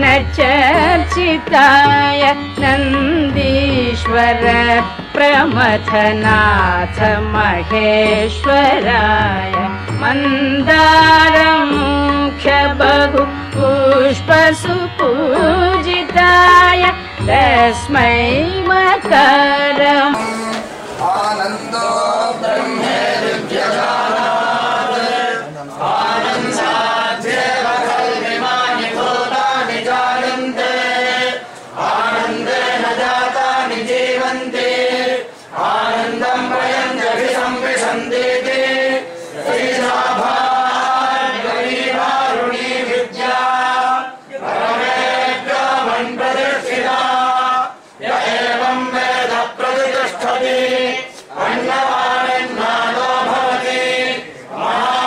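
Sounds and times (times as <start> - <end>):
group chanting a hymn: 20.1 - 55.0.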